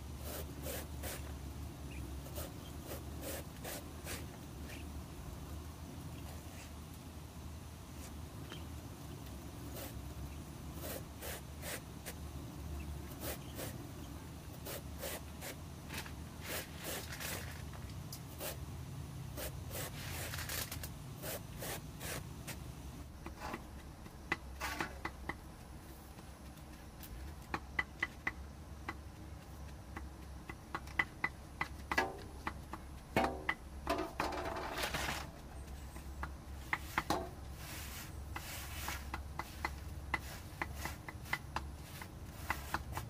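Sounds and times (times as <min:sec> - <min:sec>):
knife scraping bamboo: 0:00.2 - 0:01.3, 0:02.2 - 0:04.8, 0:10.8 - 0:12.2, 0:13.1 - 0:13.8, 0:14.6 - 0:15.6, 0:16.4 - 0:17.6, 0:19.4 - 0:22.6, 0:23.2 - 0:25.1, 0:36.6 - 0:43.0
sharp clicks and knocks: 0:23.2 - 0:37.5.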